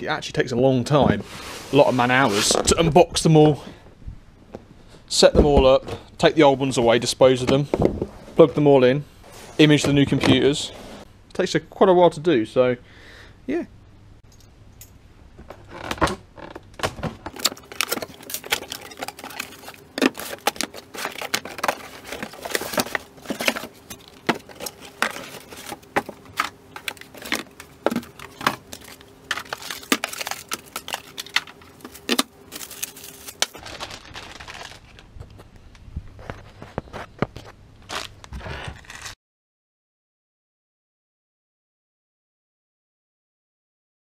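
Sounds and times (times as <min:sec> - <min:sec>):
faint steady hum: 0:00.0 - 0:38.6
packaging crinkling and rustling: 0:16.8 - 0:39.2
packing tape pulled off: 0:37.9 - 0:39.2.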